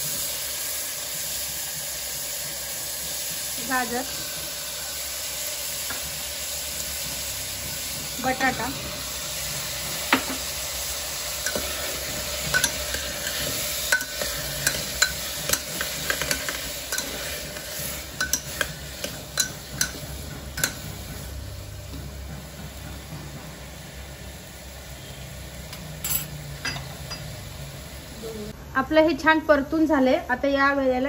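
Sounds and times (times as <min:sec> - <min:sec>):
vegetables sizzling in hot oil: 0:00.0 - 0:28.6
utensil scraping metal pot: 0:11.3 - 0:20.8.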